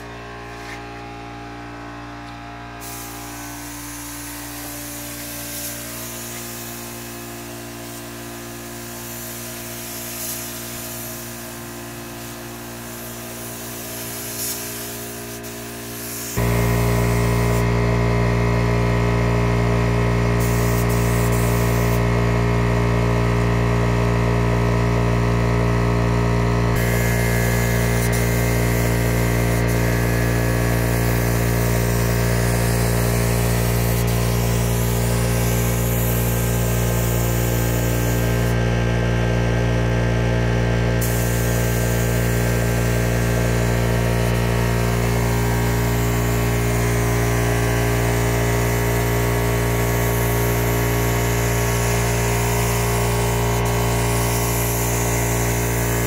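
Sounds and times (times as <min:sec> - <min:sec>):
air compressor motor humming: 0:00.0 - 0:56.0
spray gun hissing: 0:02.8 - 0:17.6, 0:20.4 - 0:22.0, 0:26.8 - 0:38.6, 0:41.0 - 0:56.0.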